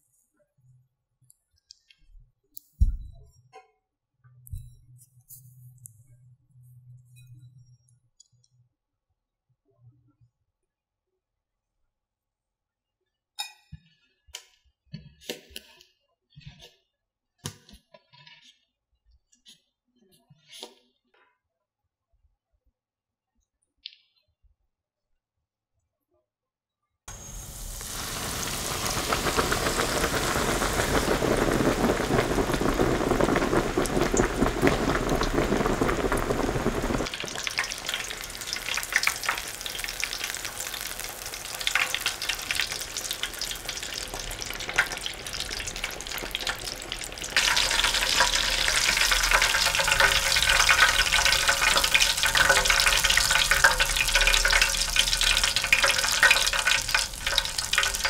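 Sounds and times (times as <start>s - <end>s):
pork cutlet deep-frying in oil: 27.1s - 58.0s.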